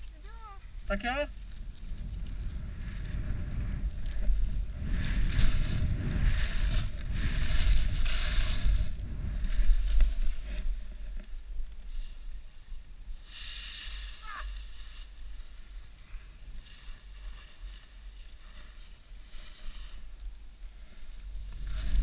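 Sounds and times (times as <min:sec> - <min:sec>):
wind buffeting microphone: 0:00.0 - 0:13.3, 0:20.0 - 0:22.0
skis scraping over packed snow: 0:01.3 - 0:22.0.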